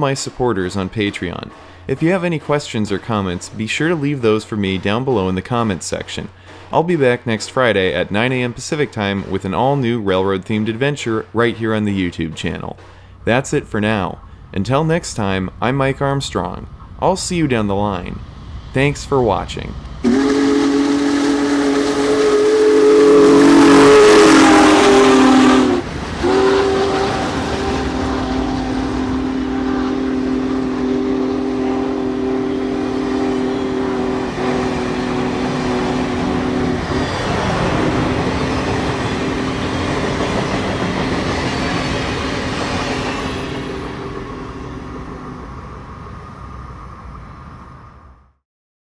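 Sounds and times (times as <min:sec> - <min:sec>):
rolling passenger cars: 0:00.0 - 0:48.3
steam locomotive passing: 0:00.0 - 0:48.4
train chime whistle blasts: 0:20.0 - 0:39.9.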